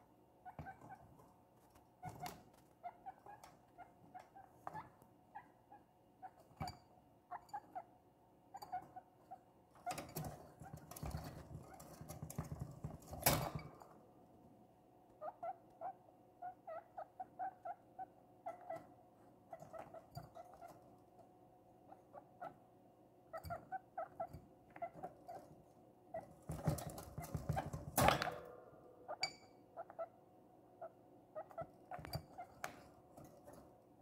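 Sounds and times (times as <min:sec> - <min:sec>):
guinea pig squeaking: 0:00.4 - 0:13.8, 0:15.1 - 0:33.4.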